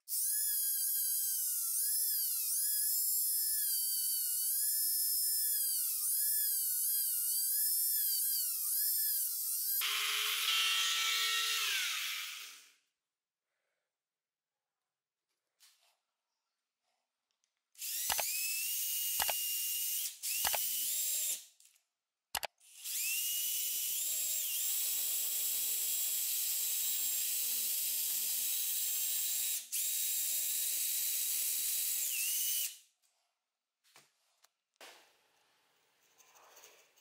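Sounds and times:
rotary tool whining: 17.8s - 21.4s, 22.4s - 32.8s
sharp clicks: 18.0s - 18.4s, 19.2s - 19.4s, 20.4s - 20.7s, 22.3s - 22.6s.

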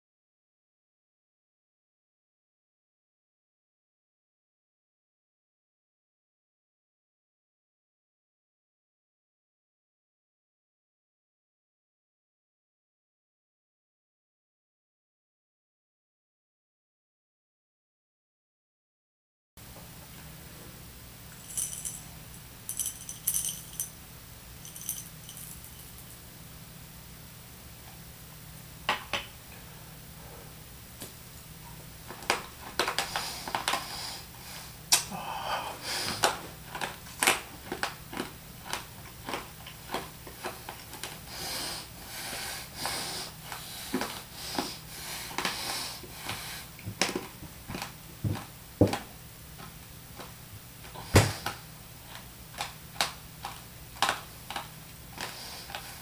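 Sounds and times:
mints rattling in hands: 21.4s - 22.1s, 22.7s - 24.0s, 24.6s - 26.2s
crunching and chewing mints: 36.2s - 41.4s.

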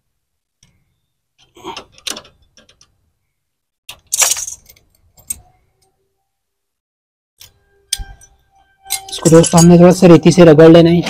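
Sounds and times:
metal tool clinking and jangling: 3.9s - 5.6s, 7.4s - 10.0s.

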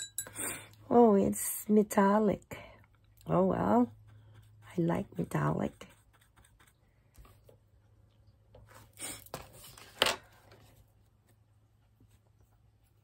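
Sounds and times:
paintbrush scraping a palette: 3.7s - 7.6s.

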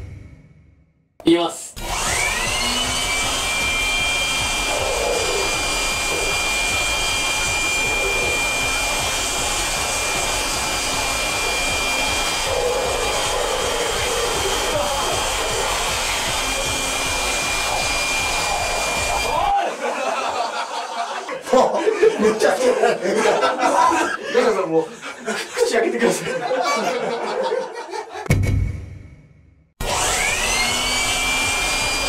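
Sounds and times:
leaf blower whining: 1.8s - 19.6s, 29.8s - 32.0s.

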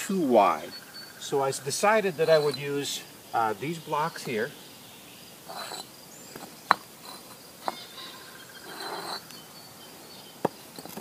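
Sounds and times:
crickets chirping: 0.0s - 11.0s
block scraping: 2.1s - 2.7s, 5.5s - 9.3s
concrete blocks clacking: 5.5s - 8.0s, 10.4s - 11.0s.

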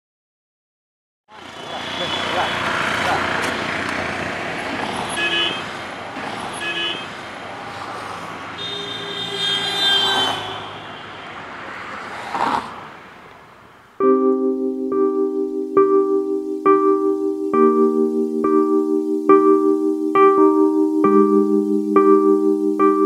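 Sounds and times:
road traffic: 1.3s - 23.0s
car horns honking: 1.4s - 3.7s, 4.9s - 5.9s, 6.5s - 7.2s, 8.5s - 11.4s
keyboard music: 14.0s - 23.0s.

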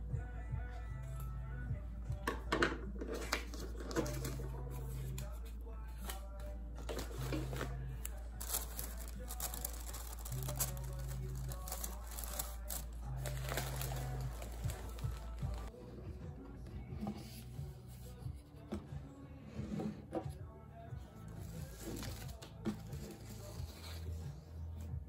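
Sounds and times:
soft background music: 0.0s - 25.0s
paper crinkling and rustling: 3.1s - 15.7s, 21.6s - 24.0s.

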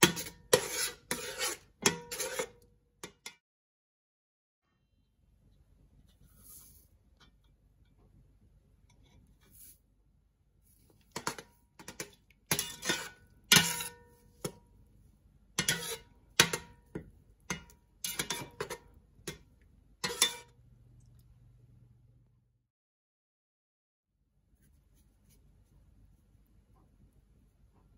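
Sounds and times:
metal spoon scraping pot: 0.0s - 3.3s, 11.1s - 14.6s, 15.6s - 20.5s.

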